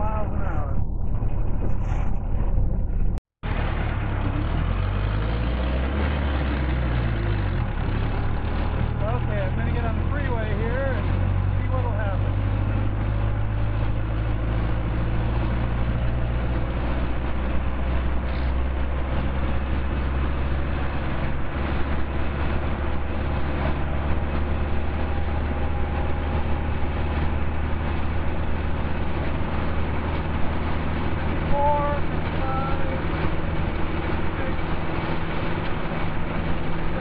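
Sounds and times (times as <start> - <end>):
wind noise: 0.0 - 3.2
car engine running under load: 0.0 - 37.0
road noise: 0.0 - 37.0.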